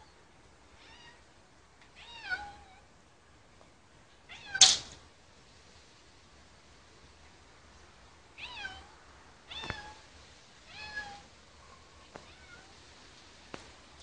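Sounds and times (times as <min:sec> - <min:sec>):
cat meowing: 0:00.8 - 0:01.2, 0:02.0 - 0:02.8, 0:08.4 - 0:08.9, 0:09.5 - 0:10.0, 0:10.7 - 0:11.3, 0:12.1 - 0:12.8
sharp click: 0:04.6 - 0:05.0.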